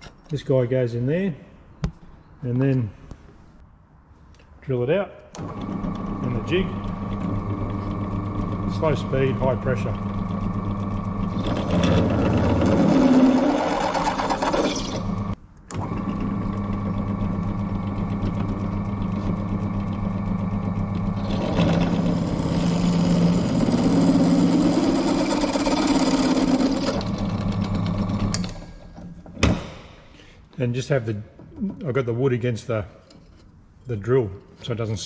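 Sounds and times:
drill press motor hum: 5.4s - 29.0s
drill bit cutting steel: 5.6s - 15.4s, 16.5s - 28.5s.

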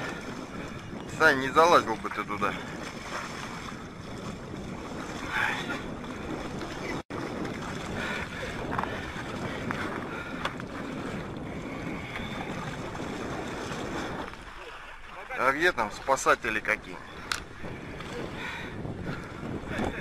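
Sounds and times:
water: 0.0s - 20.0s
wind: 0.0s - 20.0s.

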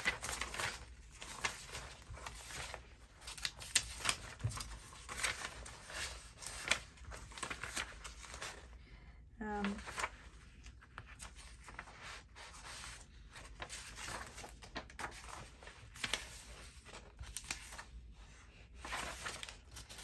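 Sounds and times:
sharp paper ticks: 0.0s - 8.5s
paper rustling and shuffling: 0.0s - 8.8s, 9.4s - 20.0s.

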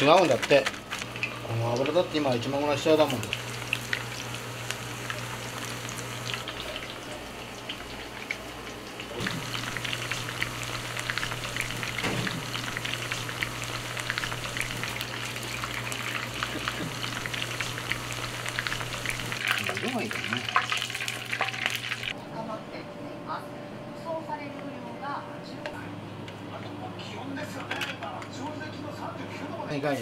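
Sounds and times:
oil sizzling while deep-frying: 0.0s - 22.2s.

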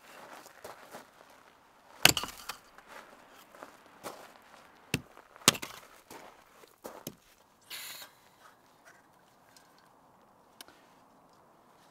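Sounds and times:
hatchet chopping wood: 2.0s - 2.6s, 4.9s - 5.8s.

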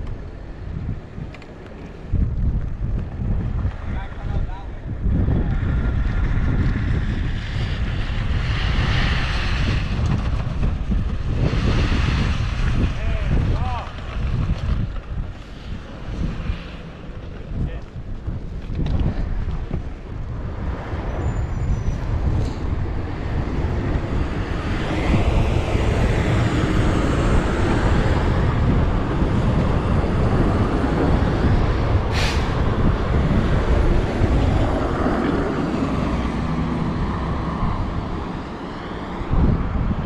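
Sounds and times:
truck passing by: 5.0s - 17.6s, 19.2s - 40.0s
sharp hiss: 32.1s - 32.6s.

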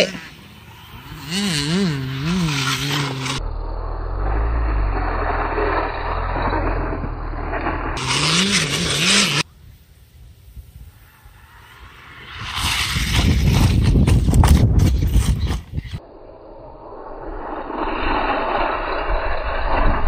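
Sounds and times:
tyres scraping through dirt: 0.0s - 9.5s, 11.1s - 16.0s
electric motor whine: 0.6s - 9.4s
muffled low rumble: 3.1s - 8.0s.

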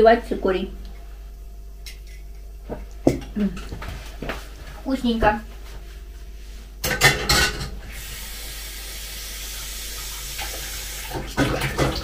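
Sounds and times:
kitchenware clattering: 6.8s - 7.8s.

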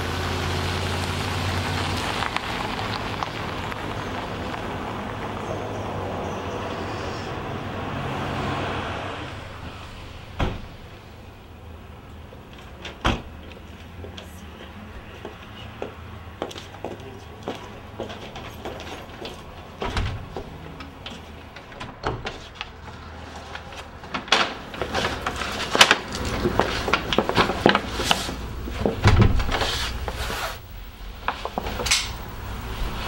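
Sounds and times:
footsteps: 12.4s - 30.6s
wooden knocks and clunks: 28.8s - 29.7s.

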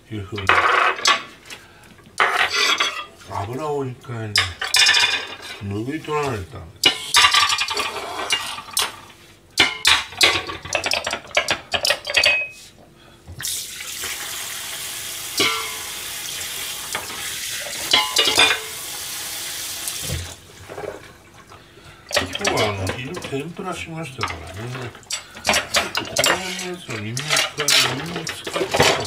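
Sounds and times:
crockery clattering in sink: 0.4s - 1.3s, 2.2s - 3.2s, 4.4s - 5.6s, 6.8s - 12.6s, 15.4s - 16.1s, 16.9s - 18.8s, 22.1s - 29.0s
tap water running: 13.3s - 29.0s.

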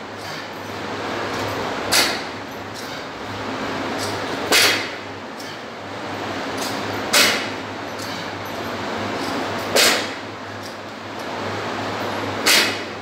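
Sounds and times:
steady low hum: 0.0s - 13.0s
barbell dropping sharply: 12.4s - 12.8s.

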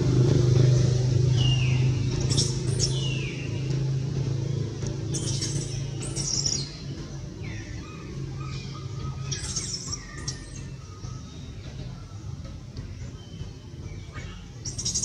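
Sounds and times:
low gliding monkey calls: 5.1s - 13.2s.

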